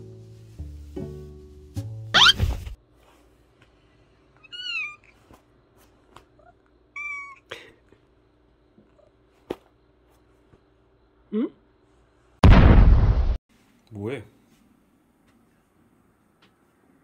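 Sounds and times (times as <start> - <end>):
background music: 0.0 - 2.2
cat meowing: 4.4 - 5.2, 6.4 - 7.5.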